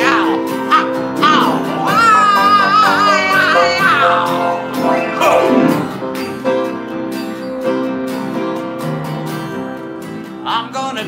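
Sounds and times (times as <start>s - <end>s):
upright piano playing: 0.0s - 10.2s
acoustic guitar strumming: 0.0s - 11.0s
voice sliding downward: 1.3s - 6.0s.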